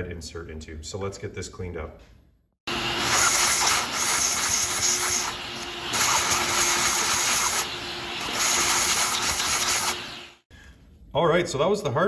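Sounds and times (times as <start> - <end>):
vacuum cleaner running: 2.7 - 10.5.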